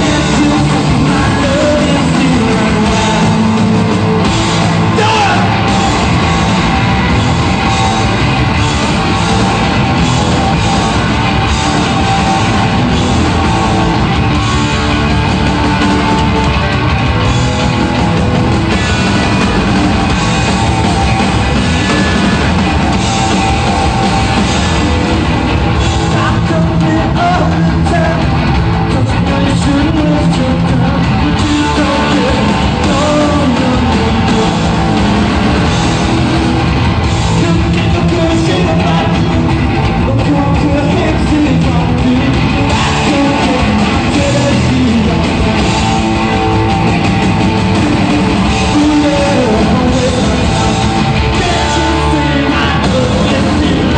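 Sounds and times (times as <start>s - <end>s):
sung vocals: 0.0s - 7.4s, 25.7s - 46.8s, 47.4s - 53.9s
punk rock band playing: 0.0s - 53.9s.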